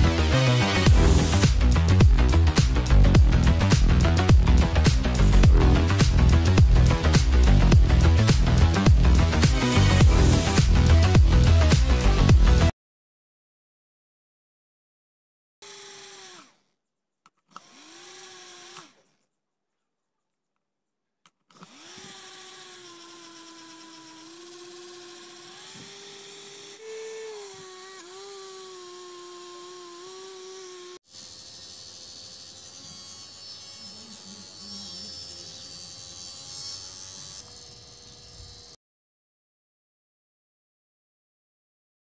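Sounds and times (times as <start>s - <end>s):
small electric motor whine: 15.6s - 16.6s, 17.5s - 19.0s, 21.6s - 38.8s.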